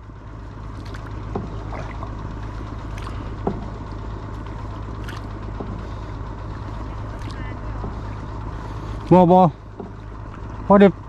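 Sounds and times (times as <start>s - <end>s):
small boat engine humming: 0.0s - 11.0s.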